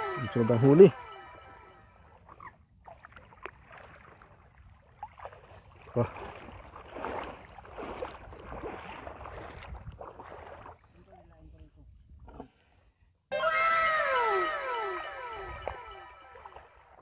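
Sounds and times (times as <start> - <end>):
water splashing from wading: 2.0 - 11.2.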